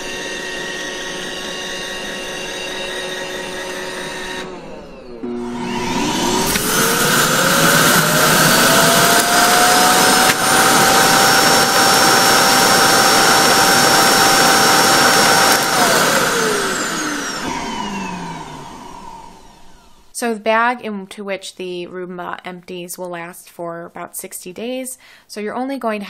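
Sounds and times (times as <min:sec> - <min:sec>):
vacuum rush of air with whine: 0:04.0 - 0:20.1.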